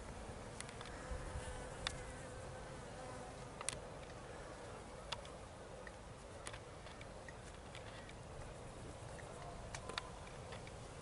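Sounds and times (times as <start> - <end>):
insect buzzing: 0.0 - 4.9.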